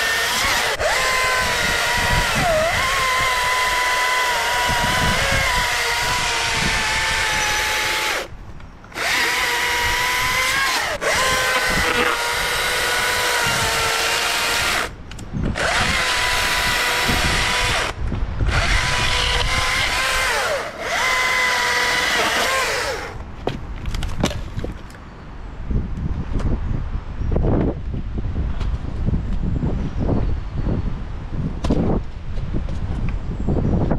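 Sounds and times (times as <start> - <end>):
battery chainsaw whining: 0.0 - 8.3, 8.9 - 23.2.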